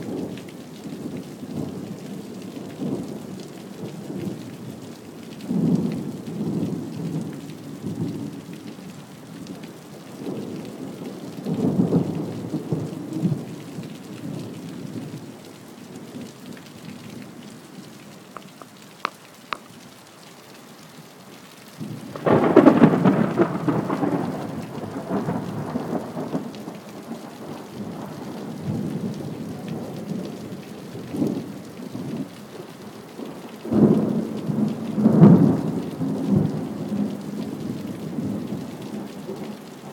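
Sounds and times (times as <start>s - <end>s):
steady rain: 0.0s - 39.9s
thunder rolling: 22.1s - 26.3s.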